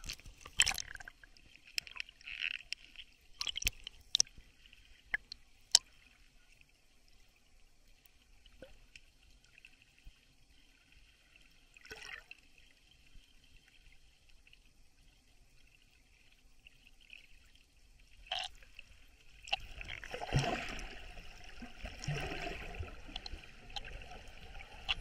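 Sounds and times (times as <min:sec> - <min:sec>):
bubbling rush of water: 0:19.5 - 0:25.0.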